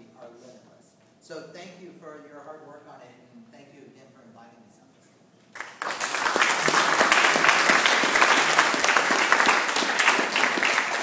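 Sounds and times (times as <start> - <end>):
people clapping: 5.5 - 11.0.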